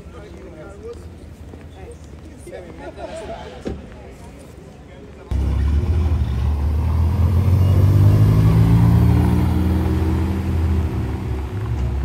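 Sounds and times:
car engine running: 5.3s - 12.0s.

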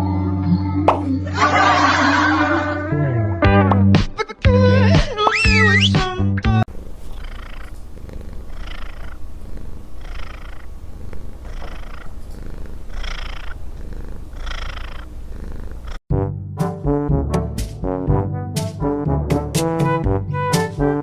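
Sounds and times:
cat purring: 6.7s - 16.0s.

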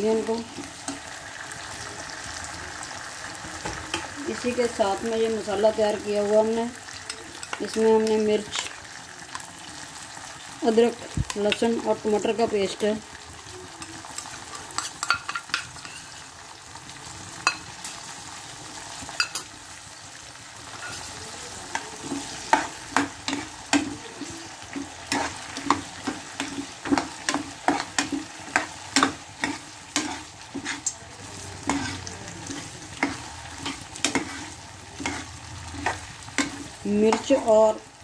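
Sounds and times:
frying sizzle: 0.0s - 38.0s
ladle clinking and scraping pan: 14.8s - 16.3s, 20.7s - 31.0s, 31.6s - 37.3s.

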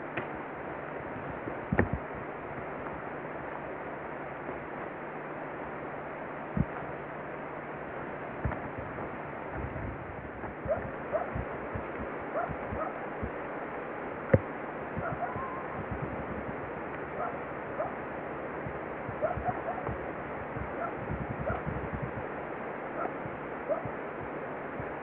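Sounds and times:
rushing background noise: 0.0s - 25.0s
soft low thuds and crunches: 1.3s - 2.6s, 8.4s - 13.4s, 14.3s - 17.0s
short rising squeaky calls: 15.1s - 15.8s.

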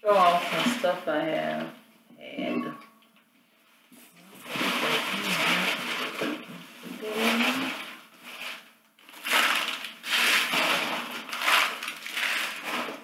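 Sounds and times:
packing paper rustling: 4.2s - 13.0s.

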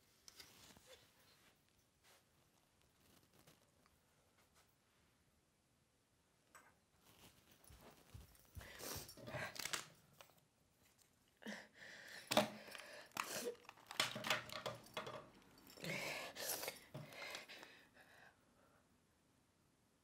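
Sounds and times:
paper crinkling and rustling: 0.3s - 4.0s, 7.0s - 11.2s, 12.6s - 15.1s.

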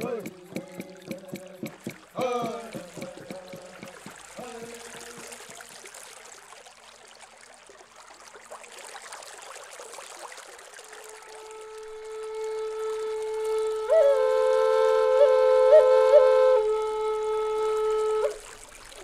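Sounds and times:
stream water trickling: 0.0s - 19.0s
flute long held note: 10.9s - 18.6s.

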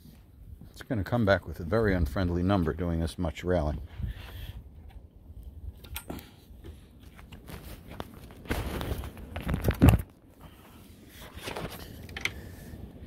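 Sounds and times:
rustling: 6.7s - 12.4s.

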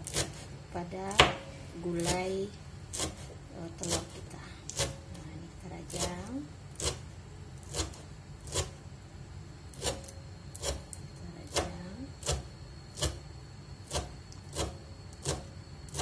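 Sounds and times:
knife chopping on wooden board: 0.0s - 0.5s, 1.1s - 1.4s, 2.9s - 5.0s.

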